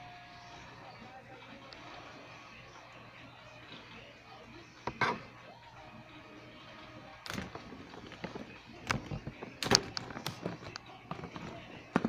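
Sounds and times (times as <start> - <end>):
handling knocks and rustles: 7.3 - 12.0.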